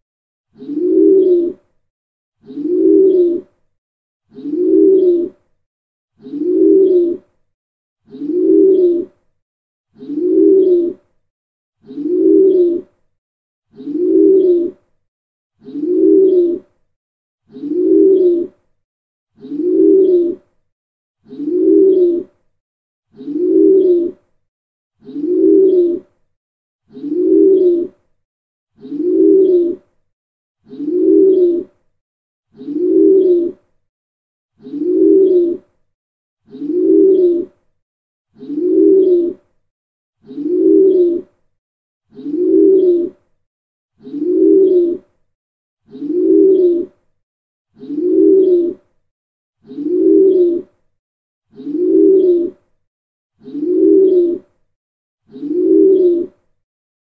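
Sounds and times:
pigeon cooing: 0:00.6 - 0:01.6, 0:02.4 - 0:03.5, 0:04.3 - 0:05.4, 0:06.2 - 0:07.2, 0:08.1 - 0:09.1, 0:10.0 - 0:11.0, 0:11.8 - 0:12.9, 0:13.8 - 0:14.8, 0:15.6 - 0:16.7, 0:17.5 - 0:18.6, 0:19.4 - 0:20.5, 0:21.3 - 0:22.4, 0:23.2 - 0:24.2, 0:25.0 - 0:26.1, 0:26.9 - 0:28.0, 0:28.8 - 0:29.9, 0:30.7 - 0:31.7, 0:32.6 - 0:33.6, 0:34.6 - 0:35.7, 0:36.5 - 0:37.5, 0:38.4 - 0:39.4, 0:40.2 - 0:41.2, 0:42.1 - 0:43.2, 0:44.0 - 0:45.0, 0:45.9 - 0:46.9, 0:47.8 - 0:48.8, 0:49.6 - 0:50.7, 0:51.5 - 0:52.6, 0:53.4 - 0:54.5, 0:55.3 - 0:56.3.

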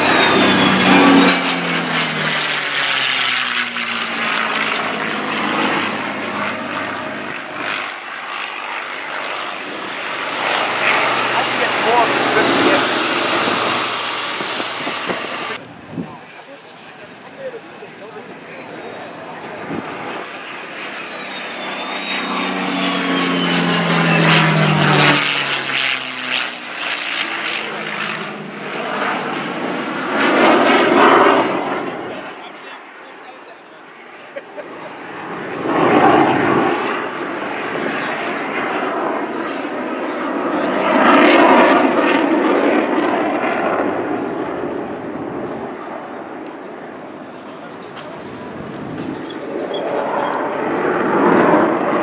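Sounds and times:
piston engine drone: 0:00.0 - 0:15.7, 0:18.1 - 0:32.2, 0:41.0 - 0:52.0
jet rushing past: 0:00.0 - 0:32.6, 0:34.7 - 0:52.0.

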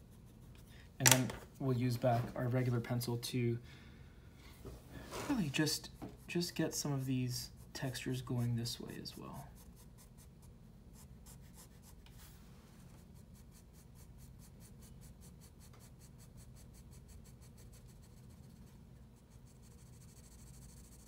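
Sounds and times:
pencil scratching on paper: 0:07.5 - 0:12.1, 0:12.9 - 0:21.0.

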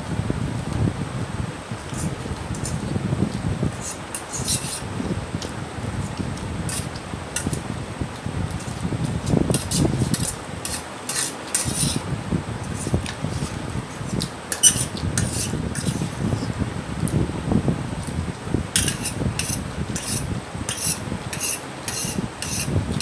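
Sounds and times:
fork scraping a steel plate: 0:03.7 - 0:04.9, 0:09.5 - 0:12.0, 0:14.5 - 0:16.1, 0:18.8 - 0:22.8.

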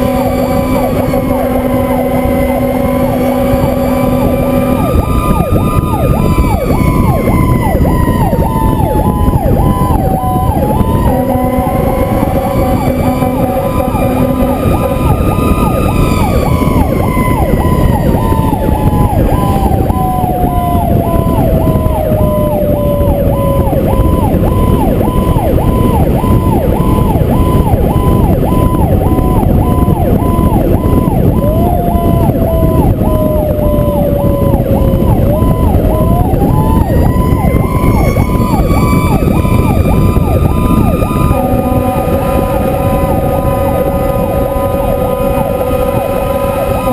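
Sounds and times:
electronic siren warbling: 0:00.0 - 0:46.9
siren tone sliding down and up: 0:00.0 - 0:46.9
steady low siren tones: 0:00.0 - 0:46.9
wind and road rush: 0:00.0 - 0:46.9.

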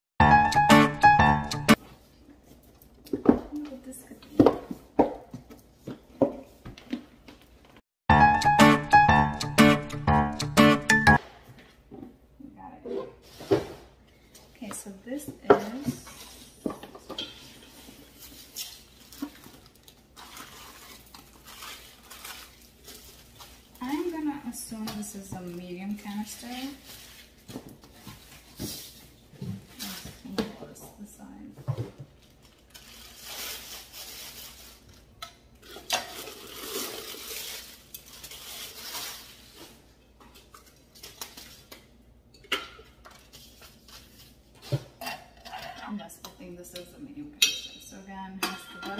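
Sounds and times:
packaging rustling and scuffing: 0:25.6 - 0:30.4, 0:32.1 - 0:35.0, 0:36.7 - 0:41.8.

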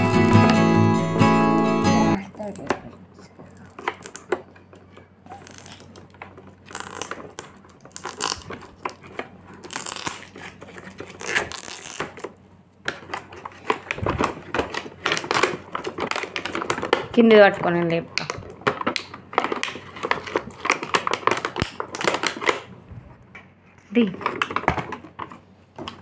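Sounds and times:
plastic wrapping crinkling: 0:03.5 - 0:17.3, 0:18.2 - 0:22.7.

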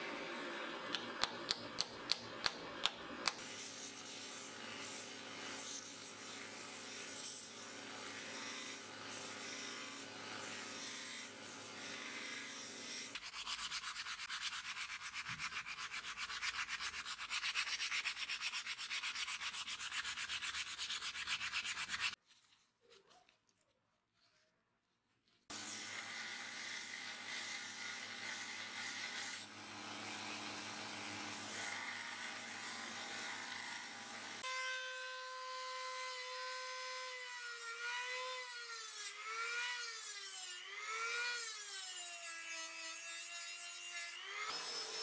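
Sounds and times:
hammer tapping wood: 0:01.0 - 0:03.4
sanding sponge rubbing wood: 0:10.7 - 0:22.2.

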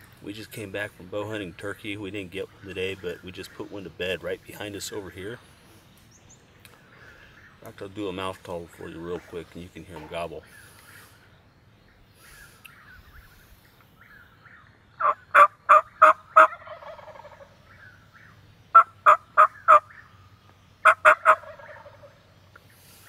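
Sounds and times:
distant wild turkey gobbling: 0:12.2 - 0:20.2, 0:20.8 - 0:23.0
turkey mouth call yelps: 0:15.0 - 0:17.5, 0:20.8 - 0:22.1.

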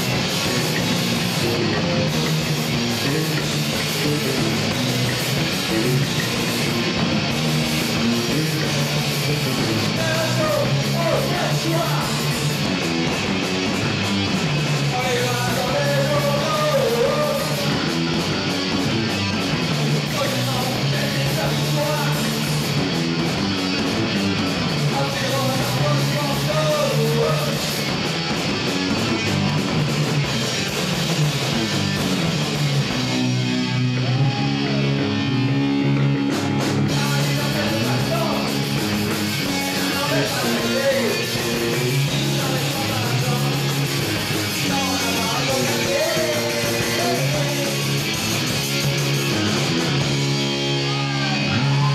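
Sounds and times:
drums and cymbals: 0:00.0 - 0:51.9
electric guitars: 0:00.0 - 0:51.9.

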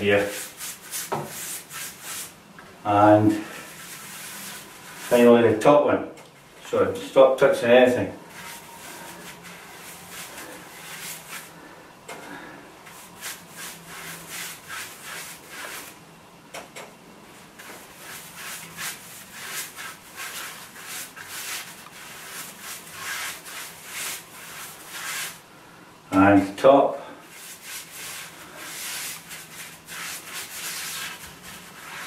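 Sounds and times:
paintbrush strokes on wood: 0:00.0 - 0:02.4, 0:03.3 - 0:05.4, 0:08.3 - 0:11.6, 0:12.9 - 0:15.9, 0:17.6 - 0:25.4, 0:27.3 - 0:32.0.

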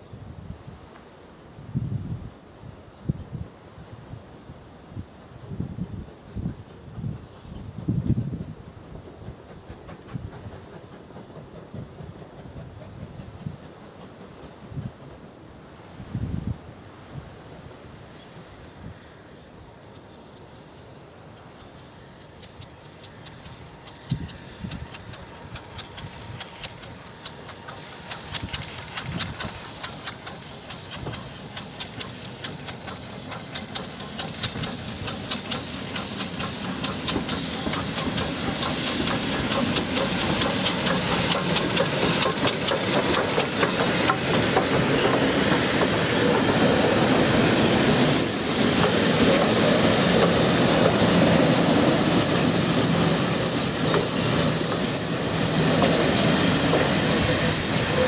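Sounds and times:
steam train passing: 0:00.0 - 0:58.0
wheels clicking over rail joints: 0:21.4 - 0:47.2
wheel squeal: 0:28.4 - 0:30.2, 0:47.9 - 0:49.2, 0:51.0 - 0:58.0.

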